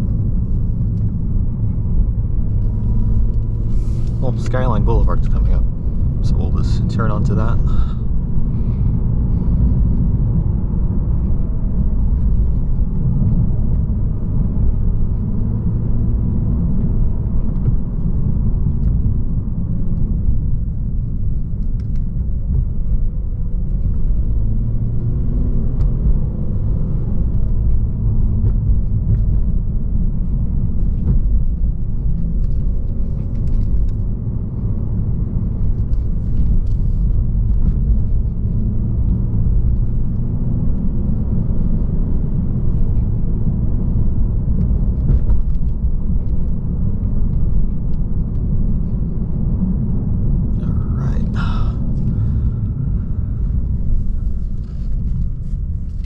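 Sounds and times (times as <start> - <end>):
car rumbling on road: 0.0 - 56.0.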